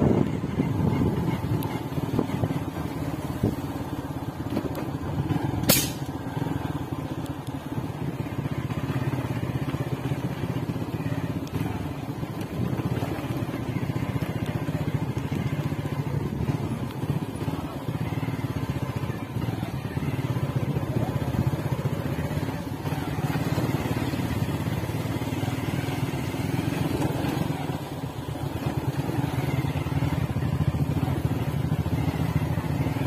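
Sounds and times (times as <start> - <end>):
vehicle engine on dirt road: 0.0 - 33.0
sharp click: 5.6 - 6.2.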